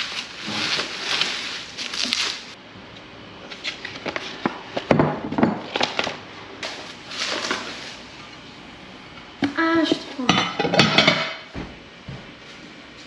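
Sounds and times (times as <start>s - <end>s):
packaging rustling and crinkling: 0.0s - 2.6s, 5.8s - 8.1s.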